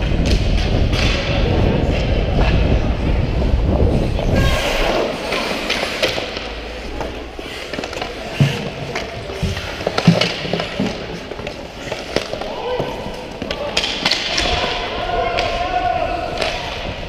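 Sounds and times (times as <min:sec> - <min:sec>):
wind rumble on microphone: 0:00.0 - 0:05.0
skates on ice: 0:00.0 - 0:17.0
sticks and puck knocking boards: 0:07.7 - 0:15.7.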